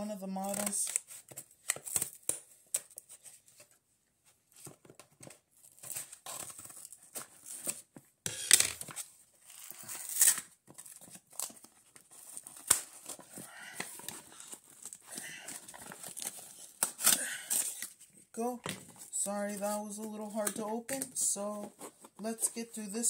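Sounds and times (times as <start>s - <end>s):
packaging crinkling and tearing: 0.4s - 3.1s, 4.6s - 7.9s, 8.5s - 18.2s.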